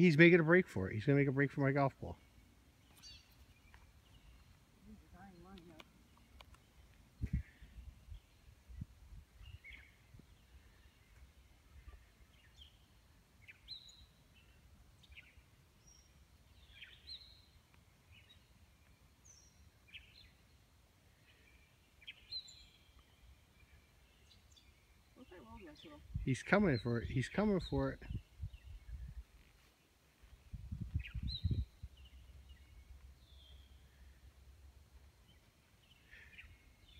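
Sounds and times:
bird chirps: 2.1s - 8.8s, 9.4s - 20.6s.

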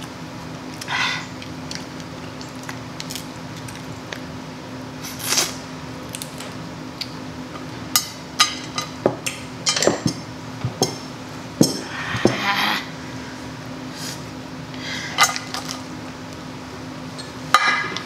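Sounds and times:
crab shells cracking: 0.7s - 4.3s, 5.3s - 7.2s.

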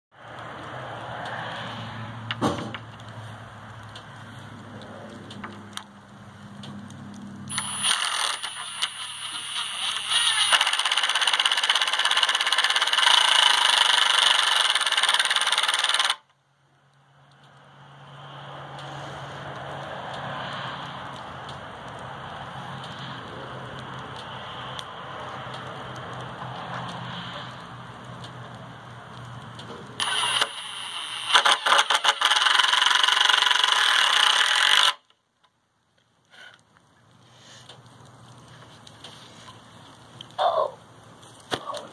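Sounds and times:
impact driver driving screw: 7.5s - 16.2s, 30.0s - 35.1s
quiet rustle: 35.9s - 41.9s.

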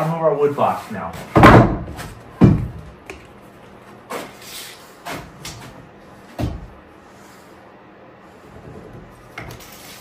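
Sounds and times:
wooden boards knocking: 1.3s - 3.0s.

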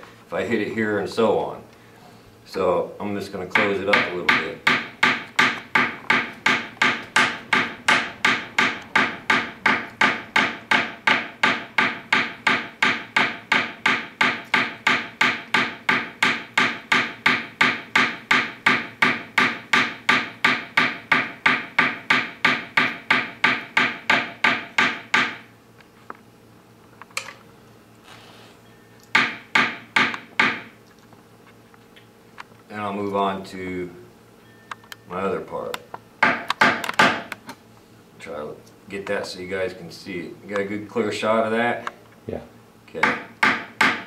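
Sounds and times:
hammer striking wire on steel block: 3.6s - 25.5s, 29.1s - 30.7s, 43.0s - 44.0s.

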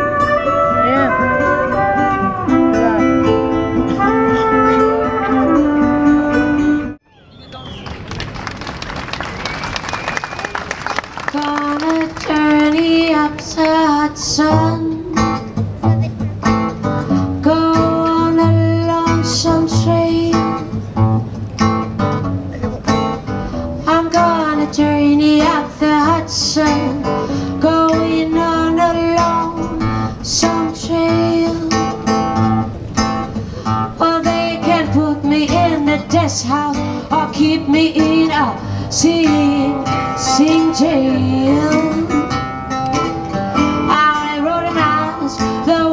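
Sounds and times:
guitar: 0.0s - 7.8s, 11.4s - 45.9s
bass: 12.4s - 45.9s.

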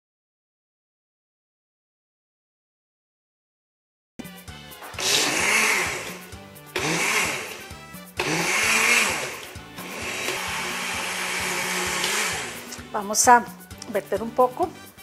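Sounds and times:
blender motor: 5.0s - 12.9s.

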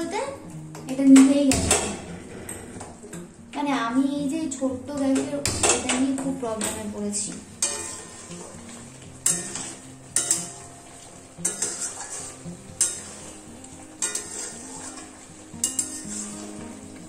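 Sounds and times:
chicken sizzling: 0.0s - 17.0s
spatula scraping a metal pan: 7.6s - 10.8s, 11.4s - 17.0s.

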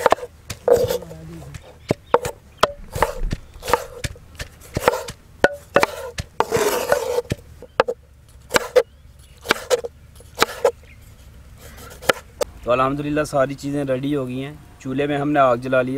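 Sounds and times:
knife scraping board: 0.0s - 8.8s, 9.4s - 10.8s, 11.6s - 12.4s
knife chopping on wooden board: 0.0s - 10.8s, 11.8s - 12.5s.

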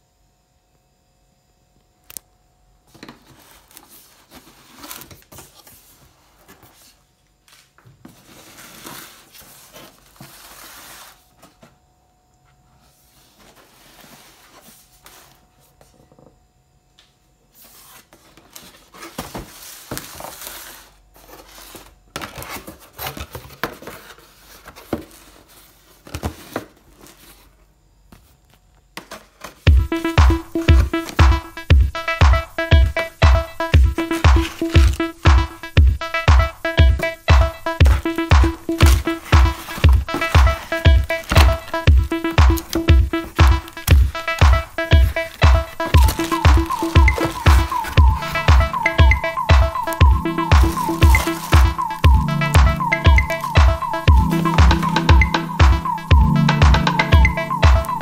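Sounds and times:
cardboard rustling and scraping: 2.9s - 11.8s, 12.7s - 16.1s, 17.5s - 29.7s, 38.7s - 48.4s, 50.6s - 51.9s.

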